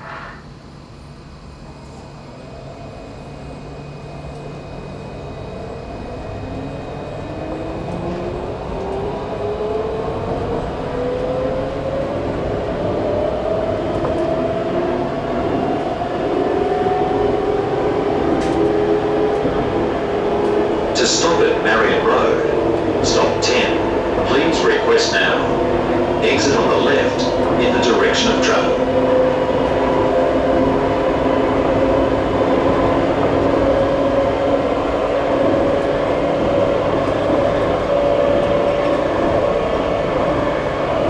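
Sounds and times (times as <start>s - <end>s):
tram rolling rumble: 0.0s - 41.0s
tram traction motor whine: 0.0s - 41.0s.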